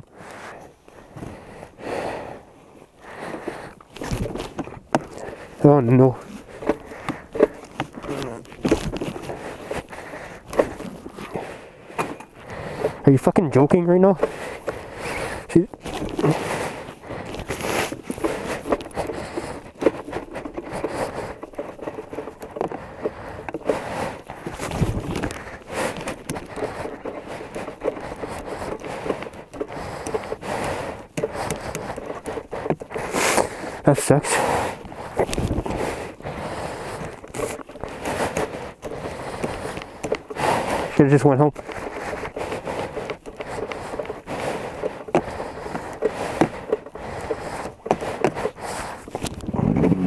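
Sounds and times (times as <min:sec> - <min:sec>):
rustling and scraping: 0:00.0 - 0:50.0
crackling clicks and knocks: 0:03.0 - 0:50.0
snowmobile running: 0:43.6 - 0:50.0.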